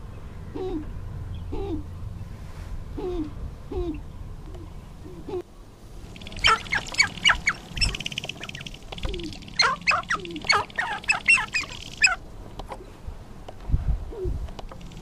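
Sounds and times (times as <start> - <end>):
grouse squawking calls: 6.1 - 12.2
grouse low coos: 6.2 - 12.2, 14.1 - 14.4.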